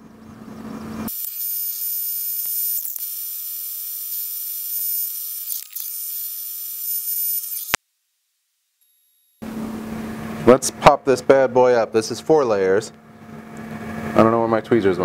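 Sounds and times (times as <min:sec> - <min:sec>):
laser engraver whine: 0:00.0 - 0:07.8, 0:08.8 - 0:10.6.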